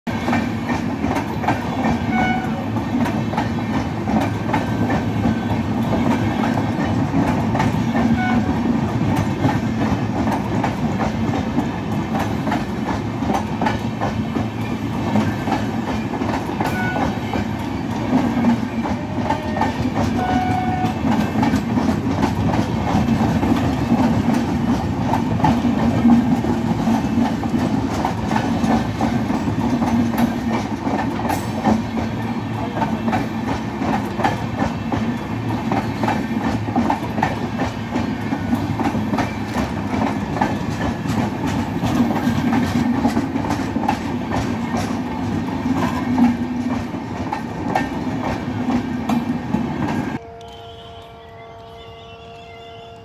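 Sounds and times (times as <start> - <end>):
train wheels rumbling on rails: 0.1 - 53.0.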